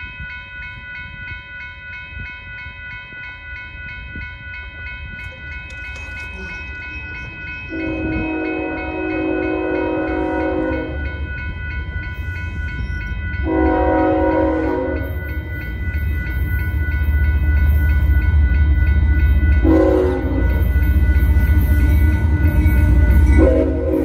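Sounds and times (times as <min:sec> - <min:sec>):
train rumble: 0:00.0 - 0:24.0
locomotive horn blasts: 0:07.7 - 0:11.0, 0:13.4 - 0:15.1, 0:19.6 - 0:20.4, 0:23.3 - 0:24.0.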